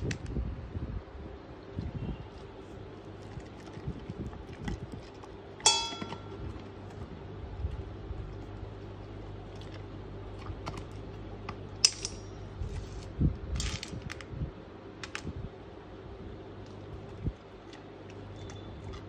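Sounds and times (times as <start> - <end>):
dog kibble clicking and crunching: 2.3 - 12.1, 16.6 - 19.0.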